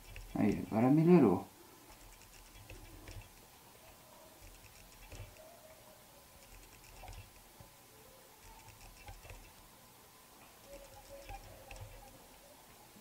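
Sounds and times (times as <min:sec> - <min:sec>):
small taps and clicks: 0:08.4 - 0:09.6.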